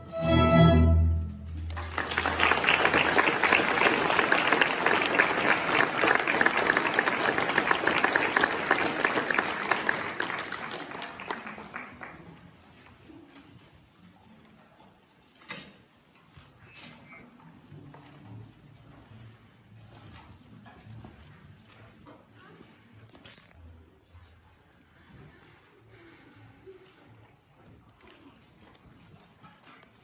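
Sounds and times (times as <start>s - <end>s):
string orchestra chord: 0.0s - 1.7s
audience applause: 1.5s - 12.6s.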